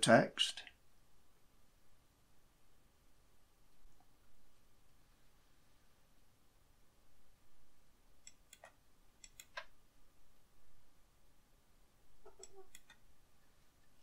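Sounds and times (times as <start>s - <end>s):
computer mouse clicks: 8.2s - 9.8s, 12.3s - 13.0s.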